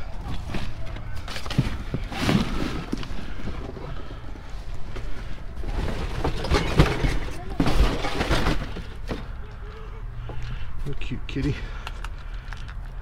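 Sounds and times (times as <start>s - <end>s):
cardboard and plastic bags rustling: 0.0s - 9.7s
knocks of items moved: 0.0s - 10.6s.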